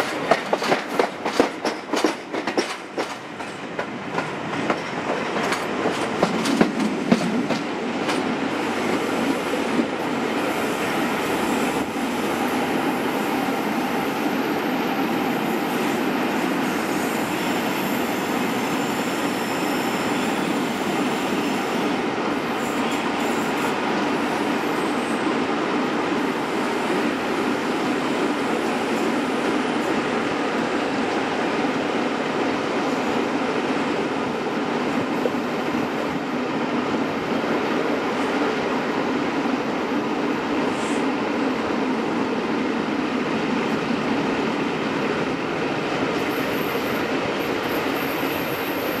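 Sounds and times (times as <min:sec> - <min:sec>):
train wheels clicking over rail joints: 0:00.0 - 0:08.3
train rumble: 0:00.0 - 0:14.9.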